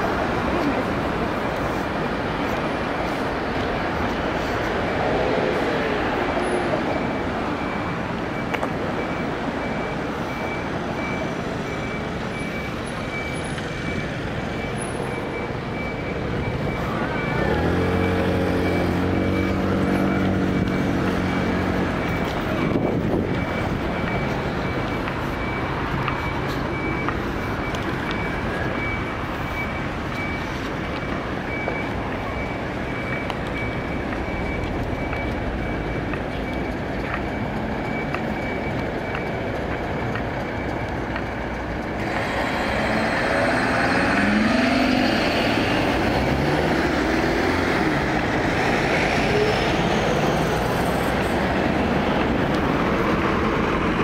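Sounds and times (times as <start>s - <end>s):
road traffic: 0.0s - 54.0s
vehicles accelerating: 0.0s - 54.0s
faint high beep: 5.3s - 41.0s.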